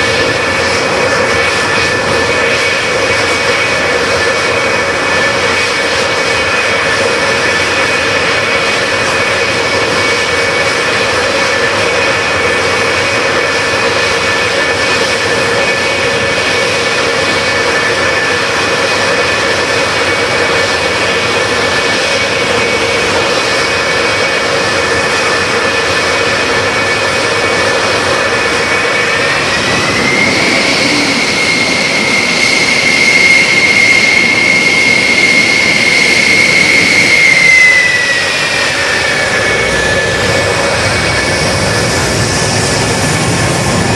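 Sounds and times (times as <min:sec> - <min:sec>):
jet engines idling: 0:00.0 - 0:43.9.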